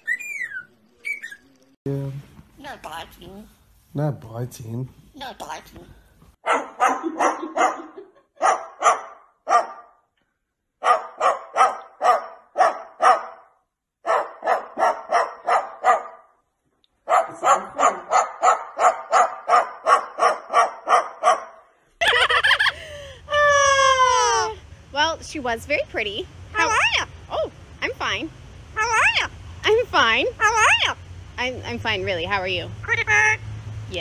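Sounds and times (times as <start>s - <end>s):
dog barking: 6.4s - 10.0s, 10.8s - 16.3s, 17.0s - 21.7s.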